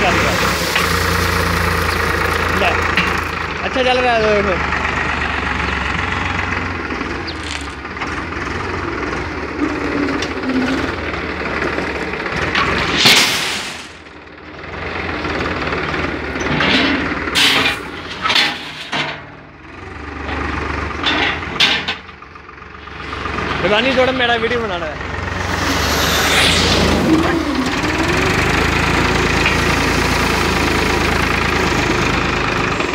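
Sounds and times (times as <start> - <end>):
gravel pouring into metal trailer: 0.0 - 3.3
bucket crunching gravel: 0.0 - 3.4, 7.3 - 7.8
tractor engine running: 0.0 - 18.6, 19.2 - 32.9.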